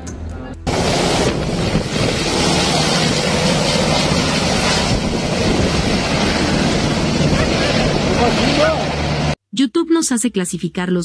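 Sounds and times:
helicopter passing overhead: 0:00.6 - 0:09.4
wind buffeting microphone: 0:00.7 - 0:08.9.

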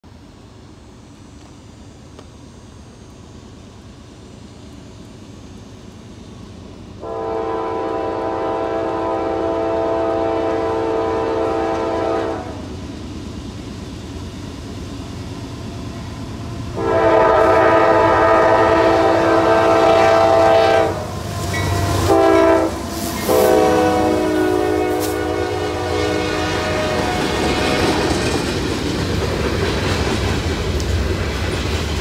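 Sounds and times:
train rumble: 0:00.0 - 0:32.0
locomotive air horn blasts: 0:07.0 - 0:12.6, 0:16.8 - 0:27.8.

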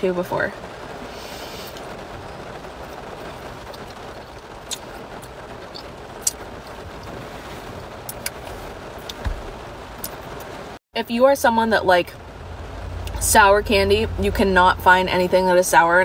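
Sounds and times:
car cabin hum: 0:06.7 - 0:10.7.

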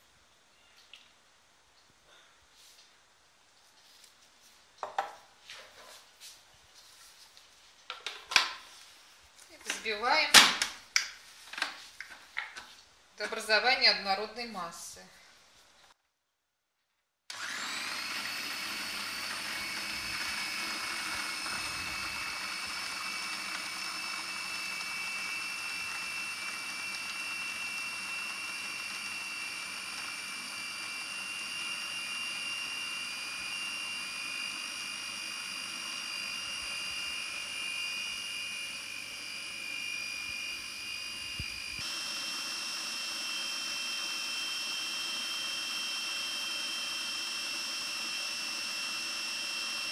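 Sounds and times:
food processor motor whining: 0:17.3 - 0:49.9.

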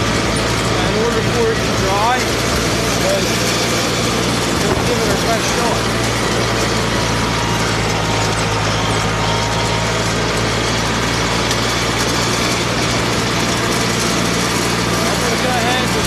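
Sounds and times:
mower mechanical clatter: 0:00.0 - 0:16.0
tractor engine running: 0:00.0 - 0:16.0.

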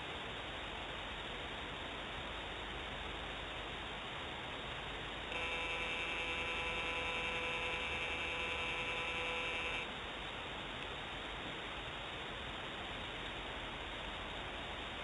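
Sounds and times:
background hiss: 0:00.0 - 0:15.0
camera pan motor whine: 0:05.3 - 0:09.9.

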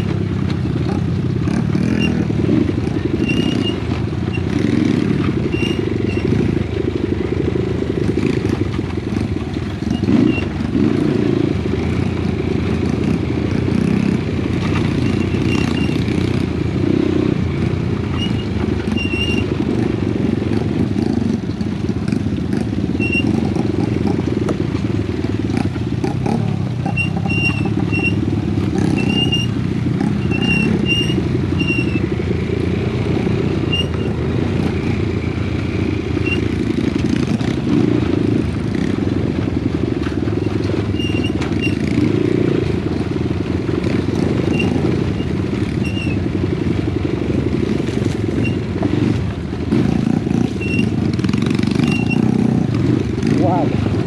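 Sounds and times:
motorcycle engine running: 0:00.0 - 0:54.0
short high squeaks: 0:03.2 - 0:04.6, 0:05.4 - 0:06.4, 0:15.0 - 0:16.0, 0:18.1 - 0:19.5, 0:23.0 - 0:23.5, 0:26.8 - 0:28.2, 0:28.8 - 0:32.2, 0:33.6 - 0:34.2, 0:36.2 - 0:36.6, 0:40.4 - 0:41.9, 0:44.4 - 0:46.2, 0:48.3 - 0:48.7, 0:50.5 - 0:51.0, 0:51.7 - 0:52.4.

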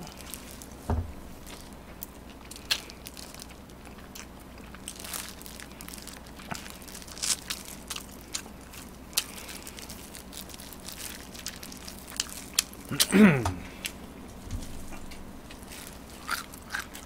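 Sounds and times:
crunchy bites and chewing: 0:01.4 - 0:14.0, 0:14.9 - 0:17.0.

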